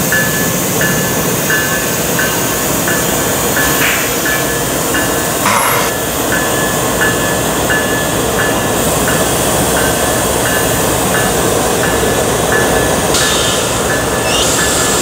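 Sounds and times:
diesel locomotive rumbling: 0.0s - 15.0s
short high ding: 5.4s - 6.0s.

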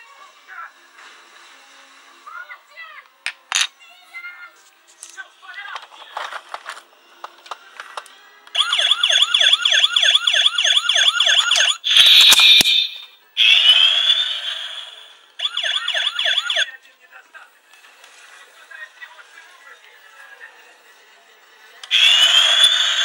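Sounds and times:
toy siren warbling: 8.6s - 16.7s, 21.8s - 23.0s
loud noisy burst: 21.9s - 23.0s.

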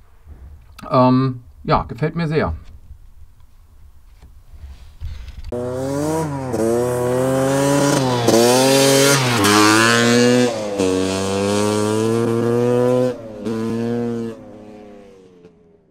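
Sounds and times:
motorbike engine revving: 5.5s - 15.9s.

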